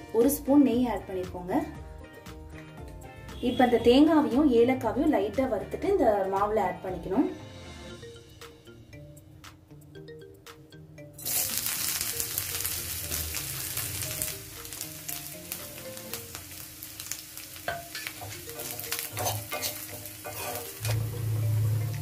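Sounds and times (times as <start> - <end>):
frying sizzle: 11.2 - 22.0
spoon scraping a pan: 17.6 - 22.0.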